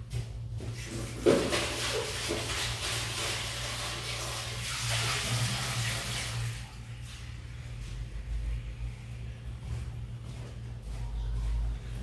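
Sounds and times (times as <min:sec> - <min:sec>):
low steady hum: 0:00.0 - 0:12.0
tap water running: 0:00.6 - 0:07.4.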